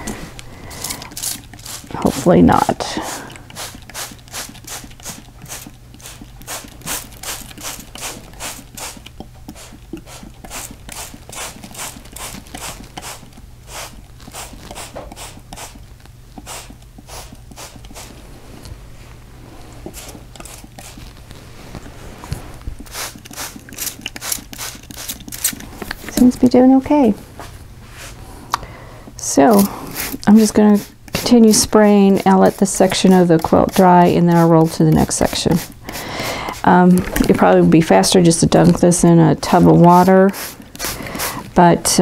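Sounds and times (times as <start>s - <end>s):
spray bottle hissing sprays: 0.1s - 15.8s, 16.4s - 18.1s, 22.8s - 25.5s, 29.5s - 38.0s, 39.5s - 41.5s.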